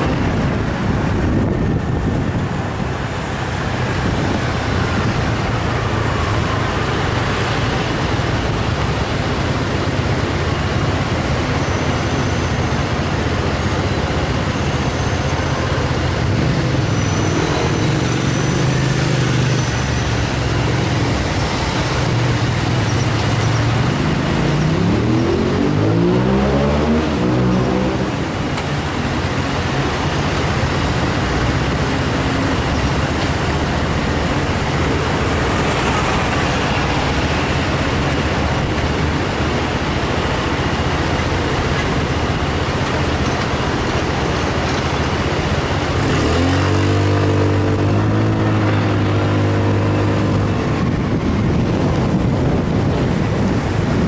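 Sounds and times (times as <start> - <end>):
traffic engine hum: 0.0 - 54.0
vehicle accelerating: 16.1 - 54.0.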